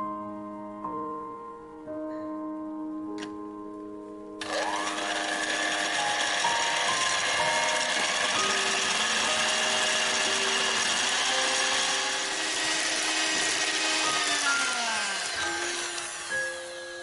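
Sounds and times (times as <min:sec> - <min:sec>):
electric hand mixer whirring: 0:04.4 - 0:17.0.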